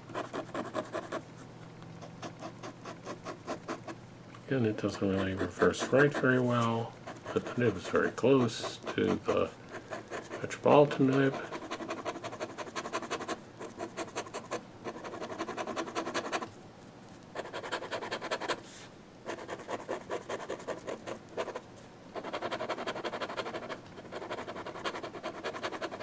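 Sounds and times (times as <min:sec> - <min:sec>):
pen nib scratching paper: 0:00.1 - 0:01.2, 0:04.8 - 0:16.5, 0:17.4 - 0:18.6, 0:19.3 - 0:21.6, 0:22.2 - 0:26.0.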